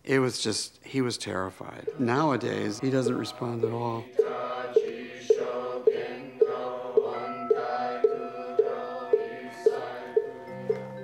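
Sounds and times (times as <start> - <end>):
percussion beat: 1.8 - 11.0
group chanting in unison: 1.9 - 10.6.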